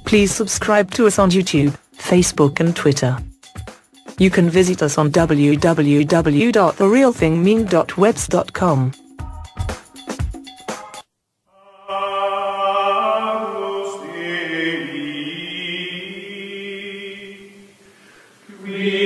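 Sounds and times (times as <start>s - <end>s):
choral chant: 11.6s - 17.8s, 18.5s - 19.0s.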